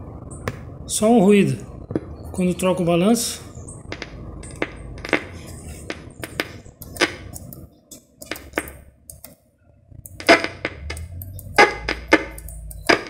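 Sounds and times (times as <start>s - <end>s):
low hum: 0.0s - 13.0s
scratchy clicks and crackles: 3.7s - 9.4s, 10.0s - 13.0s.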